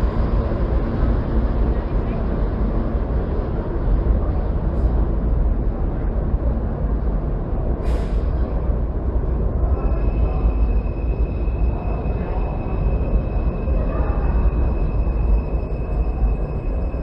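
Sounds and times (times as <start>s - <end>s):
subway trains rumbling: 0.0s - 17.0s
air hiss burst: 7.8s - 8.3s
high-pitched whine: 8.4s - 17.0s.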